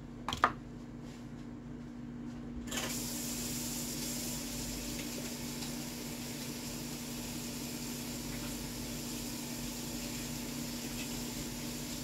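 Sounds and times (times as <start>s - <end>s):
tap water running into sink: 2.8s - 12.0s.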